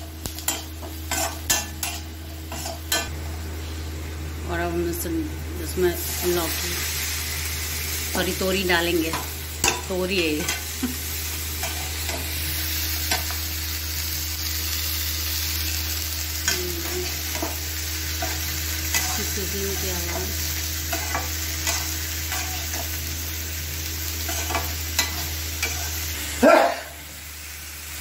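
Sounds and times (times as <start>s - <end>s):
vegetables sizzling in hot oil: 0.0s - 28.0s.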